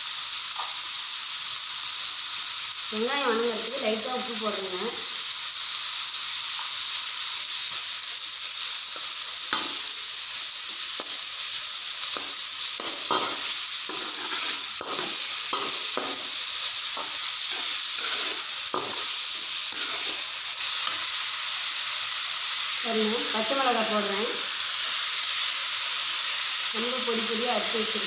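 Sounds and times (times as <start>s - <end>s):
onions sizzling in oil: 0.0s - 28.0s
ladle scraping a pan: 12.9s - 16.3s.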